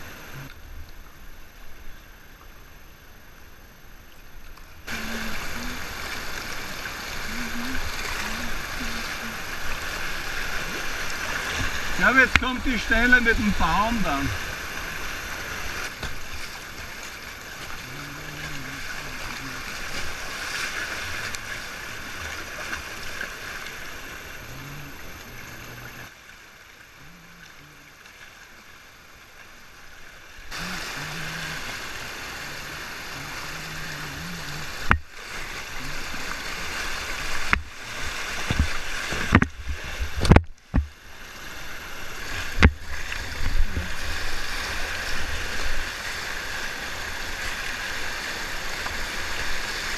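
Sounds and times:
river water rushing and splashing: 4.8 - 49.9.

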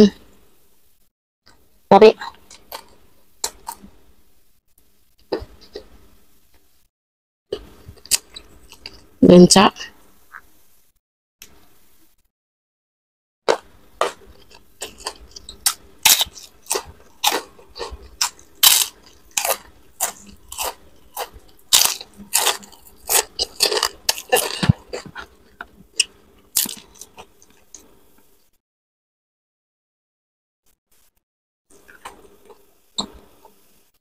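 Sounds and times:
crunchy chewing of fried food: 2.2 - 4.0, 7.6 - 9.2, 13.5 - 28.3.

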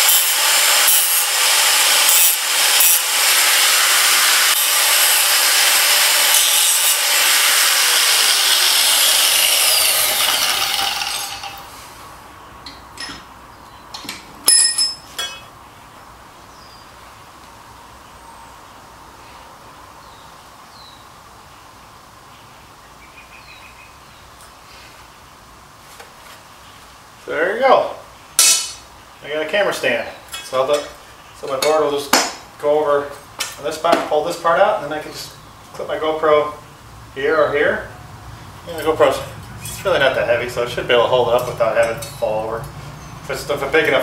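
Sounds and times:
angle grinder cutting metal: 0.0 - 11.8
metal clinks: 14.4 - 15.5.

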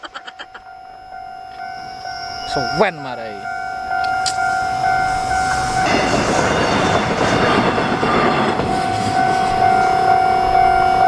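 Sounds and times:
crossing warning signal tone: 0.2 - 11.0
train wheels clattering on rails: 4.0 - 10.8.

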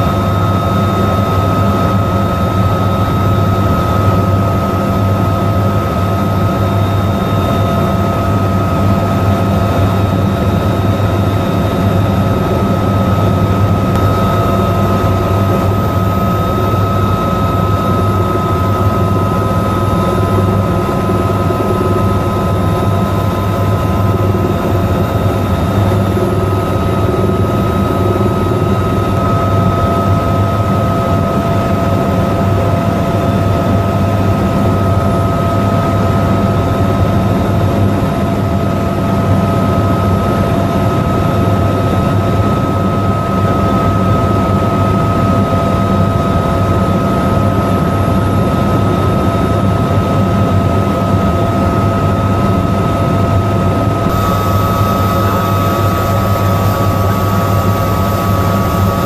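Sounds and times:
helicopter rotor and engine drone: 0.0 - 59.0
steady whining tones: 0.1 - 31.2, 54.0 - 59.0.

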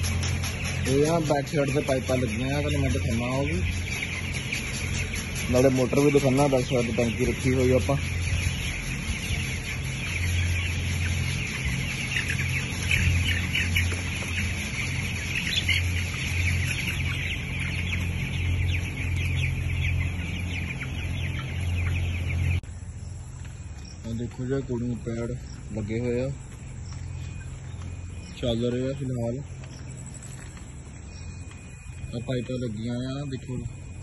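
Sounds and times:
chicks peeping and chirping: 0.0 - 34.0
pulsing low hum: 6.8 - 24.0.

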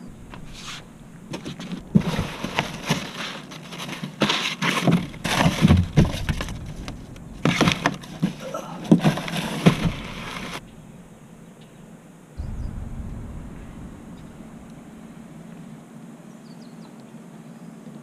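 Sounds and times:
cardboard rustling and scraping: 0.3 - 10.6.

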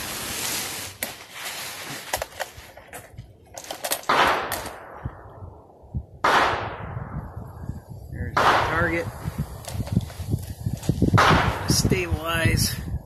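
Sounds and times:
loud gunshot with echo: 6.2 - 7.1, 8.2 - 9.0, 11.2 - 11.8.

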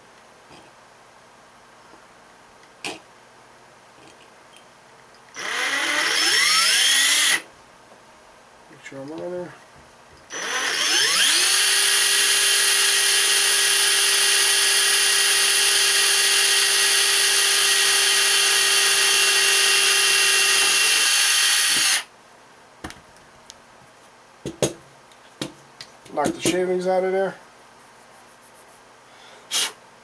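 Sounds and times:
cordless drill running: 5.3 - 7.5, 10.3 - 22.1.

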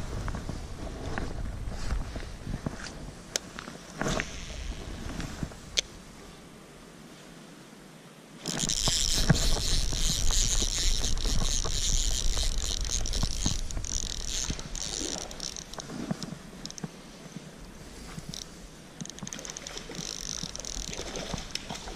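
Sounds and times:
fishing reel whirring and clicking: 4.2 - 4.8, 8.4 - 16.8, 18.2 - 21.7.

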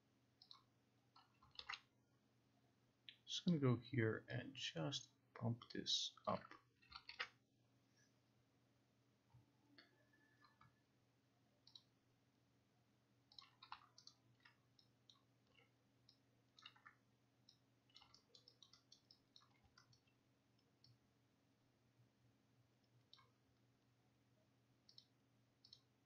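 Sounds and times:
computer mouse clicks: 0.4 - 1.9, 5.6 - 7.4, 9.8 - 10.8, 11.6 - 12.0, 13.3 - 21.0, 22.8 - 23.4, 24.8 - 26.0.

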